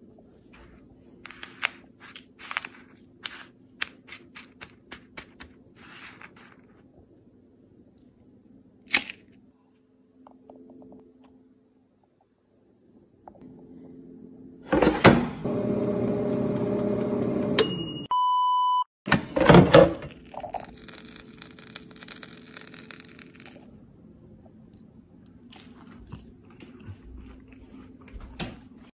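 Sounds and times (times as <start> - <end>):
air fryer fan whirring: 14.6 - 18.0, 19.1 - 20.1
censor bleep: 17.6 - 18.9.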